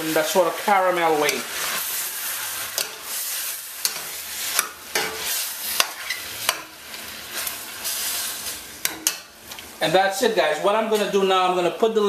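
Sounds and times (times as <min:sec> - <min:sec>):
chicken sizzling in a pan: 0:00.0 - 0:11.8
metal spoon clicking on pan: 0:02.8 - 0:03.0, 0:03.8 - 0:05.2, 0:05.8 - 0:06.7, 0:08.8 - 0:09.3.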